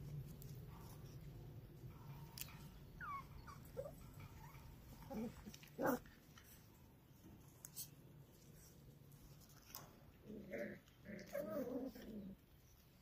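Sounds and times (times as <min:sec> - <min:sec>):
puppies whimpering: 0:03.0 - 0:06.0.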